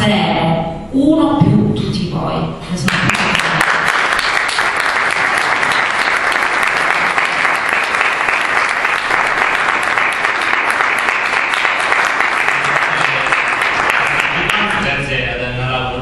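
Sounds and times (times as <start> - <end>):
audience applauding: 2.9 - 14.8.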